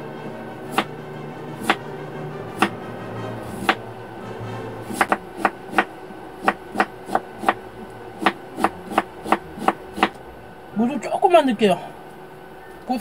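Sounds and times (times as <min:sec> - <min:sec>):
knife chopping on wooden board: 0:00.7 - 0:00.9, 0:03.5 - 0:03.8, 0:04.9 - 0:07.6, 0:08.2 - 0:10.2.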